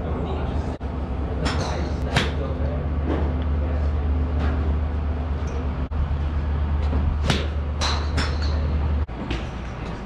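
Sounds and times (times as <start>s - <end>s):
steady low hum: 0.0s - 10.0s
golf club striking ball: 7.2s - 8.7s.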